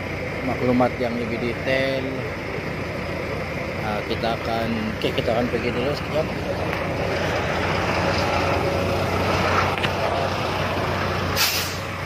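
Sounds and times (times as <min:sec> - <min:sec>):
fire engine idling: 0:00.0 - 0:12.0
air brake hiss: 0:11.4 - 0:11.9.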